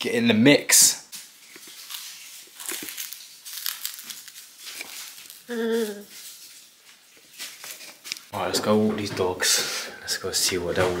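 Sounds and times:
soft rustling and crinkling: 1.1 - 8.3.

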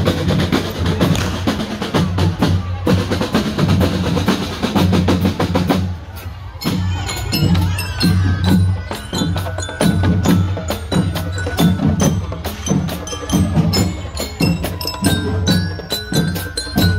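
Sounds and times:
snare and bass drums: 0.0 - 16.9
bell lyres ringing melody: 6.5 - 16.9.

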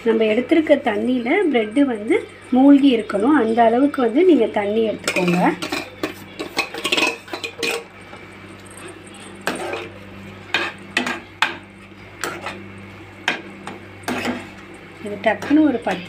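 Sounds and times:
metal spoon clinking on steel: 5.0 - 7.9.

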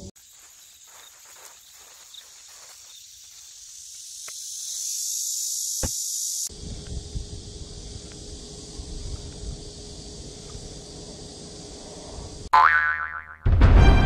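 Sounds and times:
cicadas buzzing: 0.0 - 13.3
loud thud: 13.5 - 14.0.

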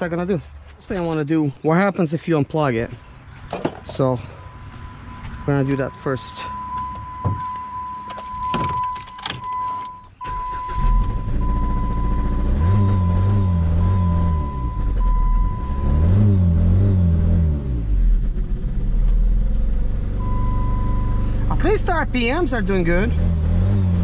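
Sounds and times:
warning chime beeping: 3.9 - 15.9
car engine starting and revving: 10.2 - 24.0.

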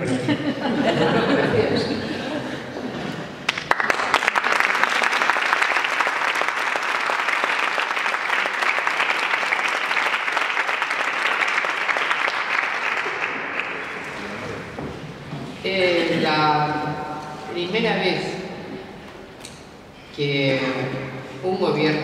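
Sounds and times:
audience applause: 3.4 - 14.7.

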